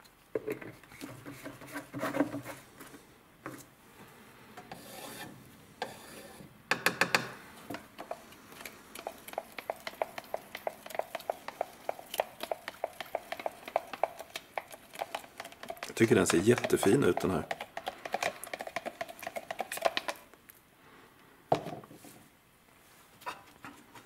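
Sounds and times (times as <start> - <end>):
stick stirring paint in plastic cup: 0.8 - 2.7, 7.7 - 20.3
small cans clattering: 13.2 - 20.2.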